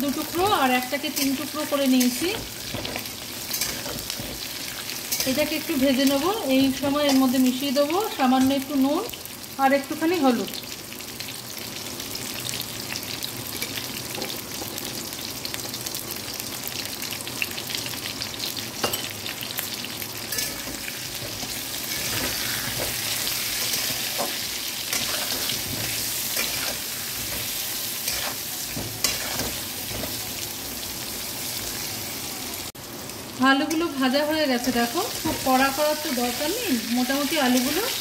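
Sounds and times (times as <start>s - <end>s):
potatoes sizzling in oil: 0.0s - 38.0s
metal spatula scraping pan: 20.3s - 30.2s.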